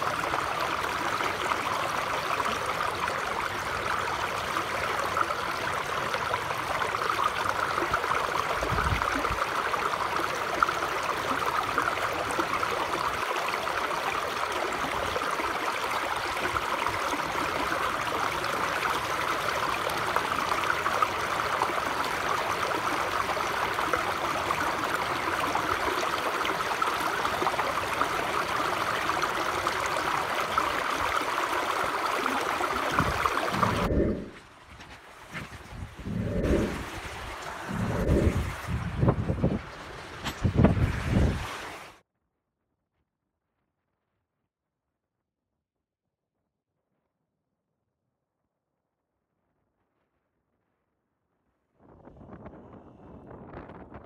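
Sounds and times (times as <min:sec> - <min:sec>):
stream rushing over rocks: 0:00.0 - 0:42.0.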